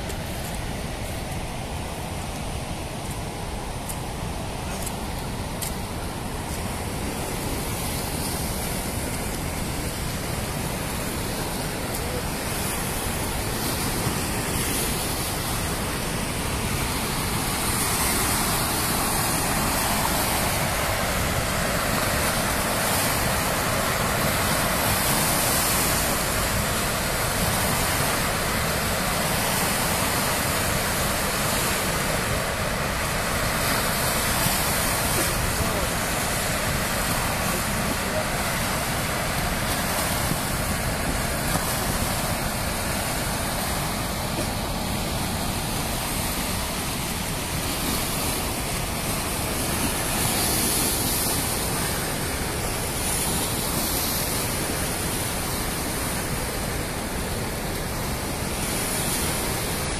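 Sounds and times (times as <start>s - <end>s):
rushing floodwater: 0.0s - 59.9s.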